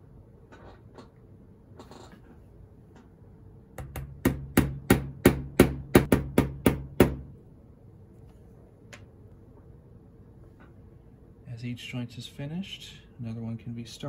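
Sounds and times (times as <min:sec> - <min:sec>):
hammer tapping metal tool: 0:03.8 - 0:07.3.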